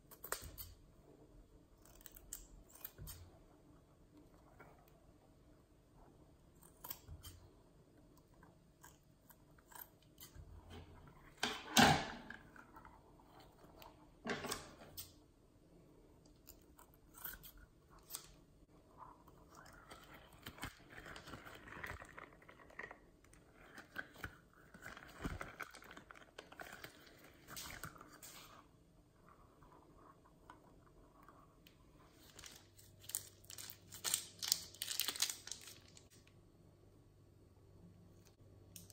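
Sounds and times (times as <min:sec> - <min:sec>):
plastic bag crinkling: 0:32.2 - 0:36.2
rubber toy squishing and tearing: 0:32.3 - 0:36.1.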